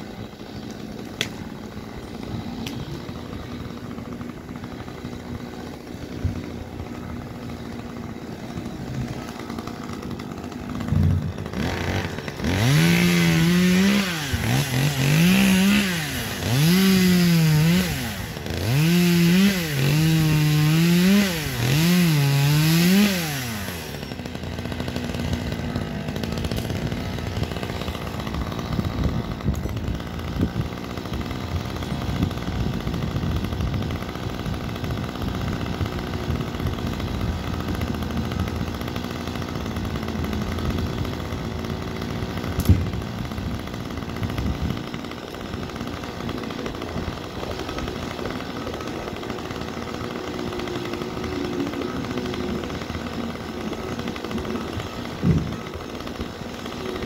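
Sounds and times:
chainsaw revving and idling: 0.0 - 57.0.

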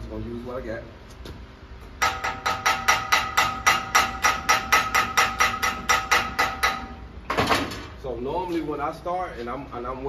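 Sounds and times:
hammer rapping on metal: 2.0 - 6.9.

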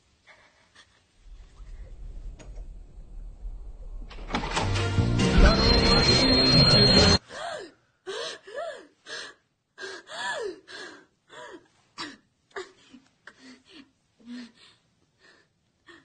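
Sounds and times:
woman gasping and whimpering: 7.2 - 16.0.

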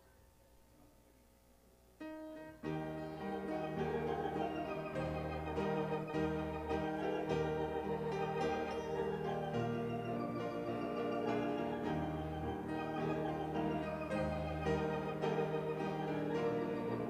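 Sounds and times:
organ chords with bass line: 2.4 - 17.0.

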